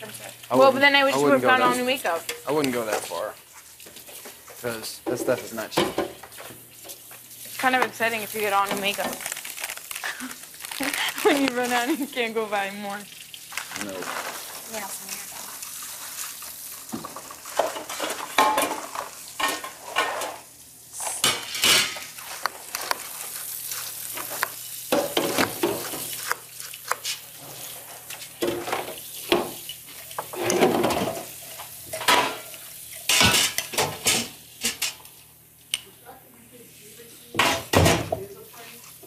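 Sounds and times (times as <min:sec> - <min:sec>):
dishes and cutlery clattering: 0:17.6 - 0:20.4, 0:31.9 - 0:35.0.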